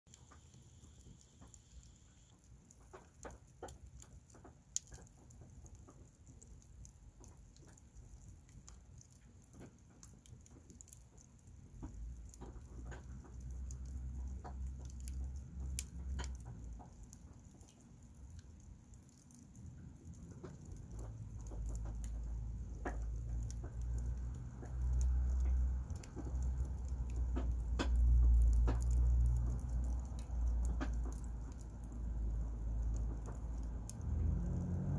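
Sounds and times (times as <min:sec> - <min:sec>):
wood fire crackling: 0:00.1 - 0:34.9
sharp wood snaps: 0:20.3 - 0:32.0.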